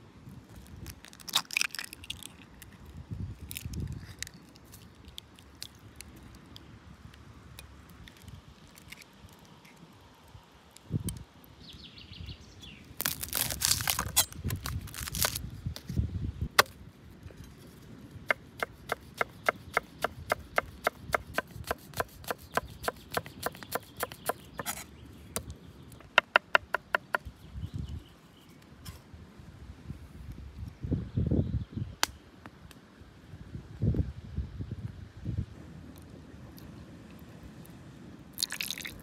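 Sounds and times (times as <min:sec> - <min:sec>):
knife chopping on wooden board: 0:18.4 - 0:24.8.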